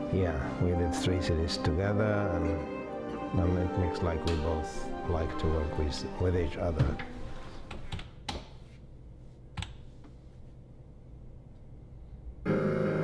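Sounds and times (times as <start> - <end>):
background music: 0.0 - 7.6.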